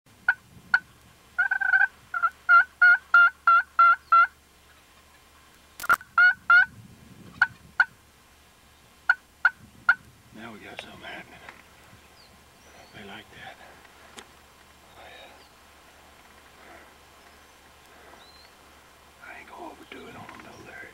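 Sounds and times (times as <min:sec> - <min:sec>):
turkey clucks: 0:00.3 - 0:06.7, 0:09.1 - 0:10.0
turkey yelping: 0:01.4 - 0:04.3, 0:06.2 - 0:06.7
sharp click: 0:05.8 - 0:06.0.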